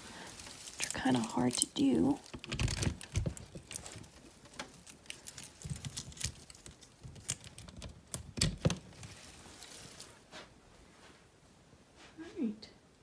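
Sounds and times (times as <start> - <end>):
tree branches rustling: 0.0 - 12.0
small clicks and taps: 2.2 - 9.1.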